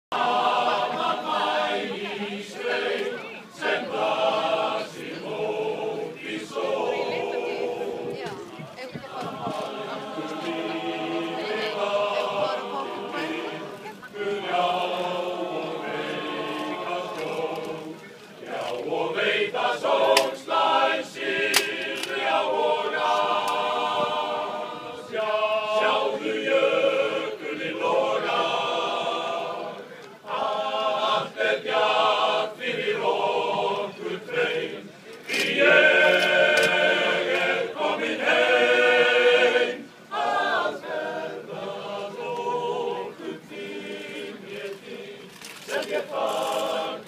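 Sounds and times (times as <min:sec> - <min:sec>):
male choir singing a cappella: 0:00.1 - 0:47.0.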